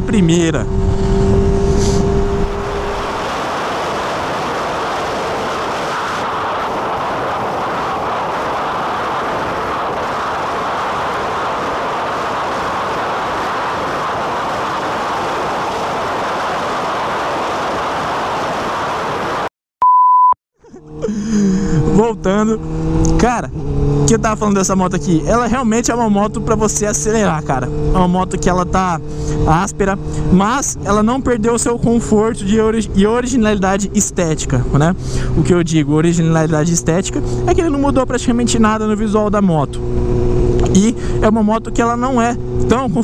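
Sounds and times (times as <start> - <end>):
motorcycle engine: 0.0 - 19.4, 20.6 - 43.0
wind rushing: 0.0 - 19.5, 39.7 - 41.7
short steady beep: 19.8 - 20.4.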